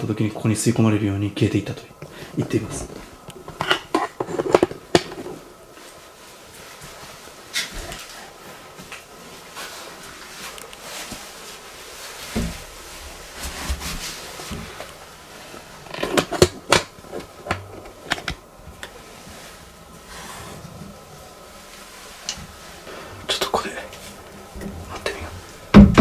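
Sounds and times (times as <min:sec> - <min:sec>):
dull thump: 0:25.7 - 0:26.0.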